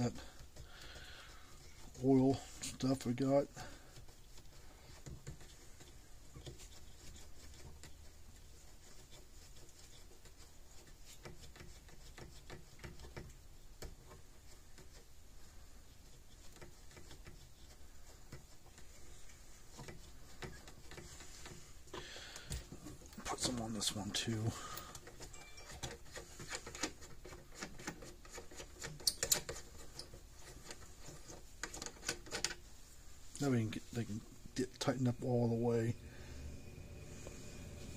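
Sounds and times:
small clicks and scratching: 0:00.0 - 0:34.2
knob clicking and rubbing on threads: 0:24.9 - 0:32.8.

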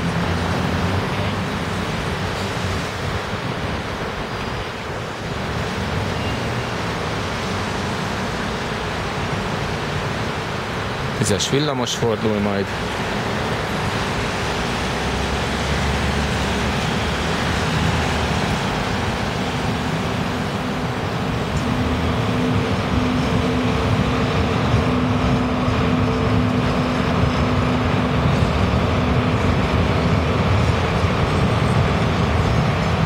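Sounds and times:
tram rumbling past: 0:00.0 - 0:33.0
low hum: 0:16.4 - 0:33.0.

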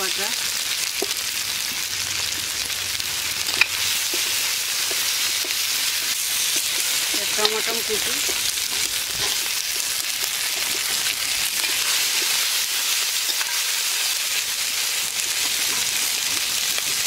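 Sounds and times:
tomatoes sizzling in hot oil: 0:00.0 - 0:17.0.

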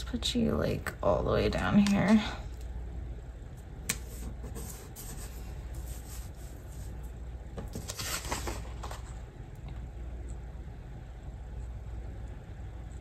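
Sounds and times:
steady low hum: 0:00.0 - 0:13.0
paper rustling and sliding: 0:03.9 - 0:09.2.

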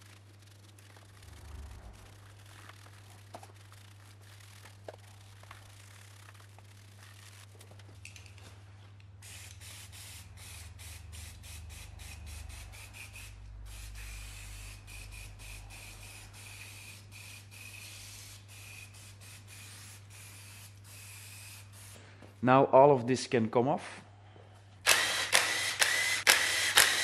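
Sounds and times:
aerosol can spraying: 0:02.0 - 0:07.4, 0:09.2 - 0:22.0, 0:24.9 - 0:27.0.

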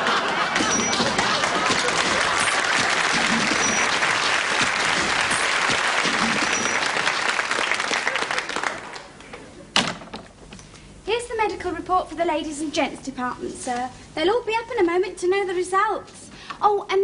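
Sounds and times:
audience applauding: 0:00.0 - 0:09.2
audience laughing: 0:00.0 - 0:09.7.

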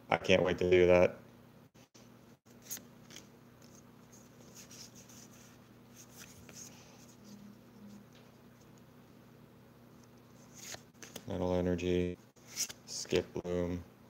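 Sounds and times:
low steady hum: 0:00.0 - 0:14.0
cards being shuffled: 0:02.5 - 0:07.4, 0:10.0 - 0:11.3, 0:12.4 - 0:13.0.

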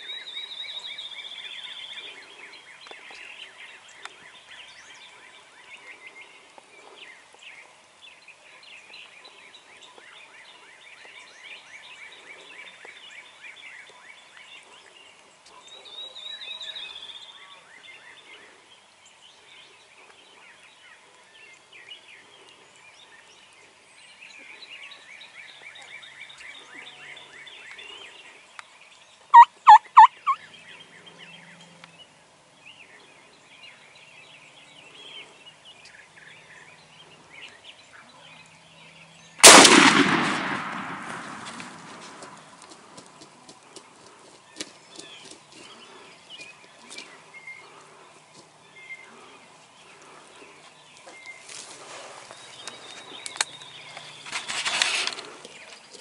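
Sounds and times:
turkey gobbling: 0:29.3 - 0:30.4.

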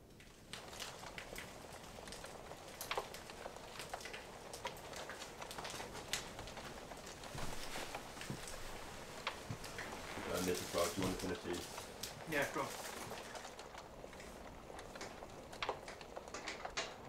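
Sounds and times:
fire crackling and popping: 0:00.0 - 0:17.0
faint hiss: 0:05.8 - 0:13.4.

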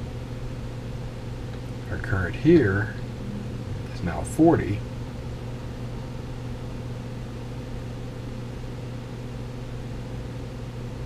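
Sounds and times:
amplifier hiss: 0:00.0 - 0:11.0
amplifier steady low tone: 0:01.2 - 0:08.4.

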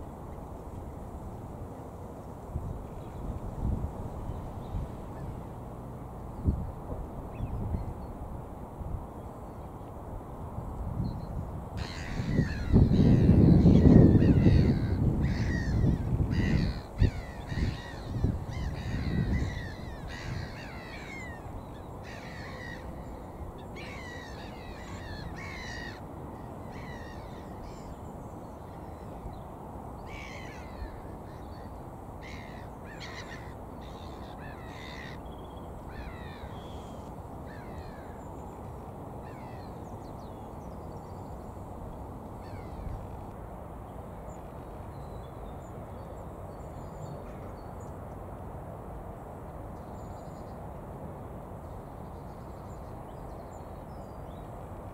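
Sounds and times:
low rush of background noise: 0:00.0 - 0:54.9
gulls calling: 0:11.8 - 0:28.1.

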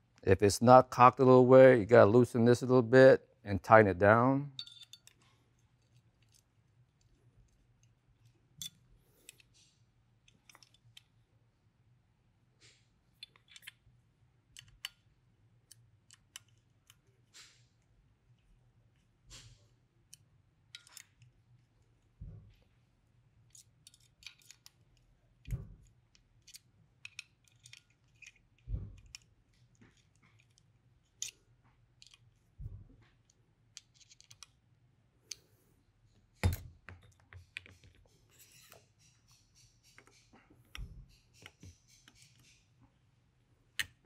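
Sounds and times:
small metal clicks and taps: 0:04.6 - 0:11.1, 0:13.2 - 0:13.8, 0:14.5 - 0:15.1, 0:15.7 - 0:17.6, 0:20.1 - 0:21.3, 0:23.5 - 0:32.4, 0:33.0 - 0:34.6, 0:36.1 - 0:42.6, 0:43.8 - 0:44.0.

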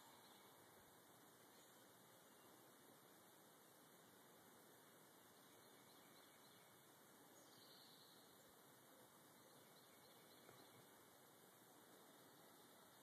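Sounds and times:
steady faint hiss: 0:00.0 - 0:13.0
distant bird chirps: 0:05.3 - 0:11.2.

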